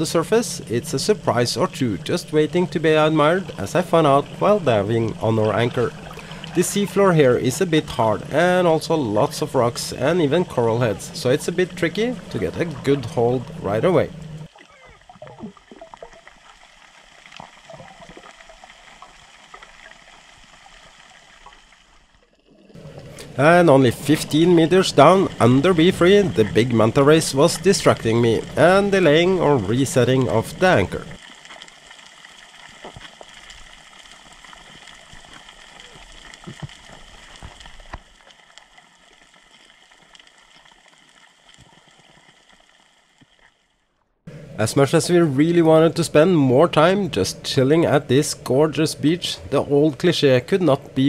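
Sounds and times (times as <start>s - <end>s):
underwater bubbling and gurgling: 0.0s - 43.7s
crackling clicks: 31.0s - 43.6s.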